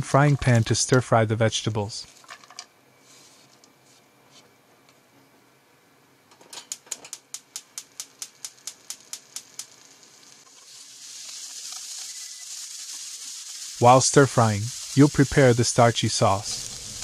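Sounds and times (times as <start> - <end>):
frying pan sizzling: 7.4 - 17.0.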